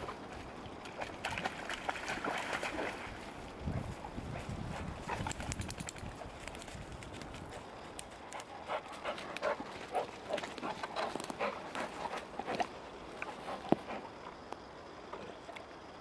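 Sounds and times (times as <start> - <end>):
dog panting: 8.3 - 14.2.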